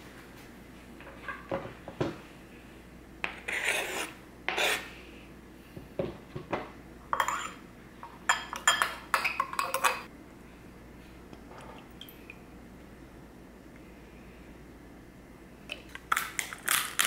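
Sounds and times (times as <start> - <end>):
knife scraping cutting board: 3.3 - 4.9.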